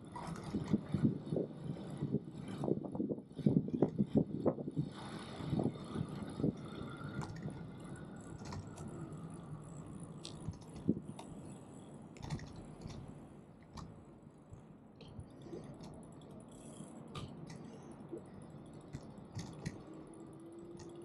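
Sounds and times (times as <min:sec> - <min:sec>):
bike ride rumble: 0:00.0 - 0:21.0
light clicks and rattles: 0:05.7 - 0:21.0.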